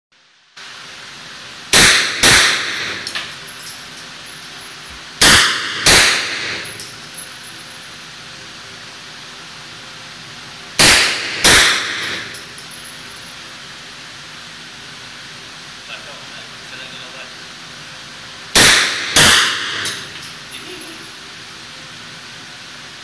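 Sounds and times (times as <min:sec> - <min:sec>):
gunshots echoing indoors: 0:01.8 - 0:03.1, 0:05.2 - 0:06.6, 0:10.8 - 0:12.3, 0:18.6 - 0:20.0.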